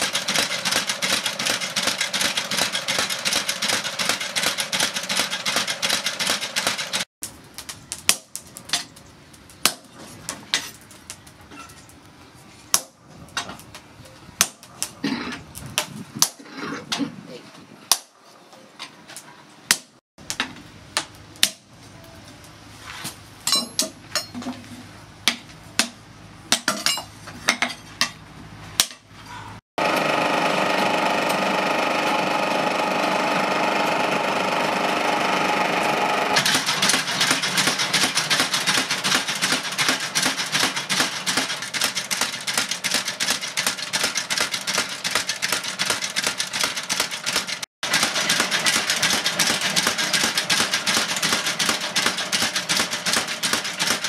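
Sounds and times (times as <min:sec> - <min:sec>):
hammer striking hot steel on anvil: 0:23.5 - 0:24.4.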